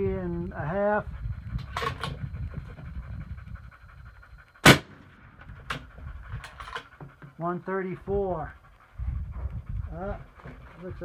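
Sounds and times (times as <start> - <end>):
suppressed rifle shot: 4.6 - 5.9.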